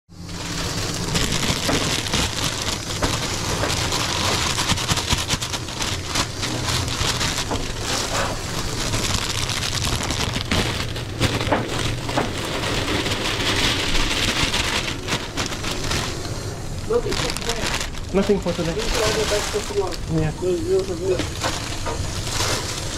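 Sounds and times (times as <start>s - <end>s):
small crackles and clicks: 0.2s - 22.9s
steady hiss: 14.8s - 22.9s.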